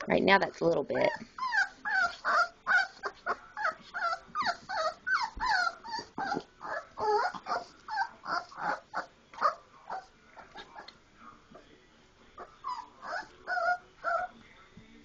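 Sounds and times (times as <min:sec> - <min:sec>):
puppies whining: 0:01.1 - 0:11.0, 0:12.4 - 0:14.4.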